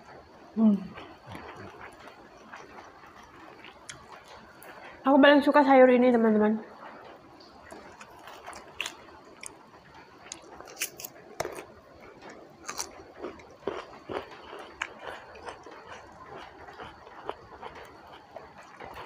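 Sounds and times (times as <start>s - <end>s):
person crunching raw vegetables: 7.7s - 9.6s, 10.2s - 19.0s.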